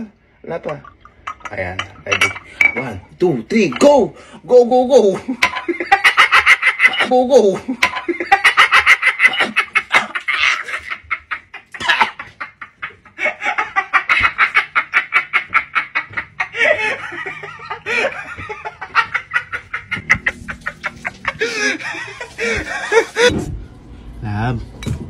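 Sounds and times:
man laughing hysterically: 5.1 - 23.3.

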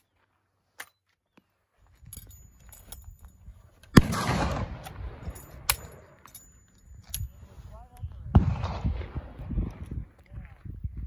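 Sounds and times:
rifle action clicking and clacking: 2.1 - 7.4.

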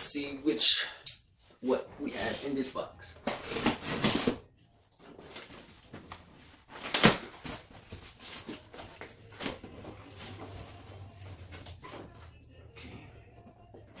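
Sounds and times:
cardboard rustling: 3.2 - 11.0.

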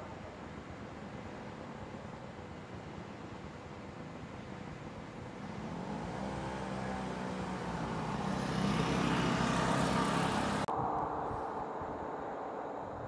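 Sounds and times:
vehicle engine running: 5.2 - 10.7
weak engine hum: 5.2 - 10.7.

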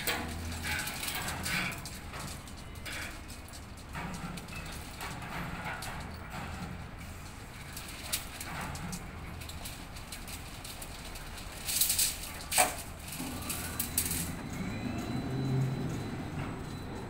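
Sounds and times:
metal chains clinking and clanking: 0.0 - 17.0
hoist whine with machine hum: 11.0 - 17.0.

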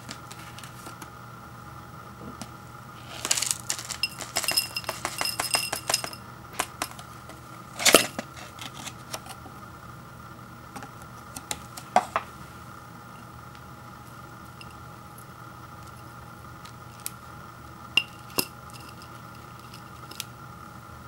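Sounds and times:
dried bits pattering into bowl: 3.0 - 7.1.

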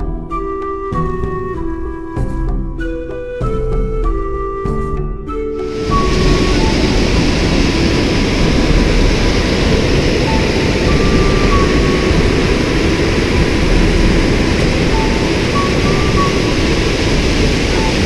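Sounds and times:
waterfall and rapids rushing: 5.5 - 18.0.

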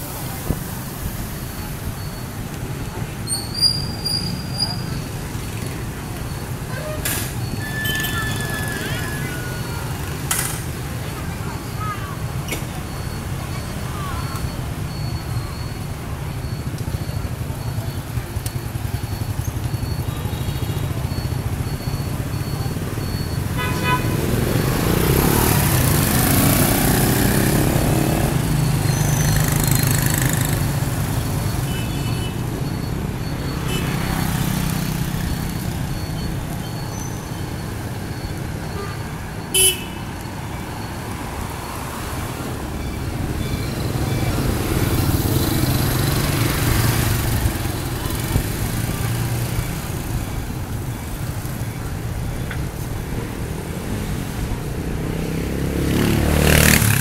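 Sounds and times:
motorbike engines passing: 0.0 - 57.0
horn toots: 23.6 - 24.5, 38.8 - 40.0.

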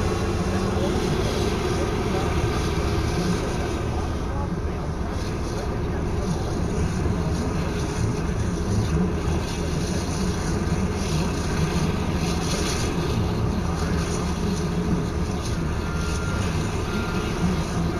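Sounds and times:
low engine rumble in cab: 0.0 - 17.9
faint short high tone: 15.8 - 17.5.

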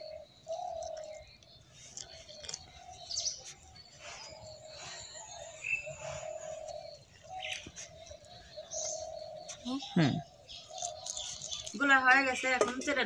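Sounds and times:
birds chirping: 0.0 - 13.0
low cooing: 4.3 - 11.0.

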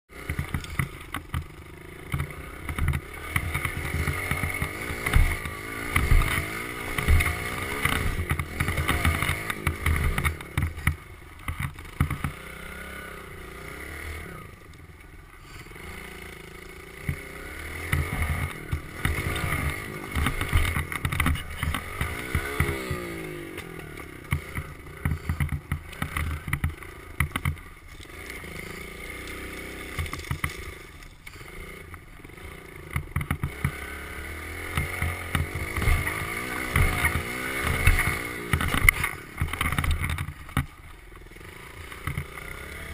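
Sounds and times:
dirt bike engine revving: 0.1 - 42.9
knocks and rattles: 29.9 - 30.7.

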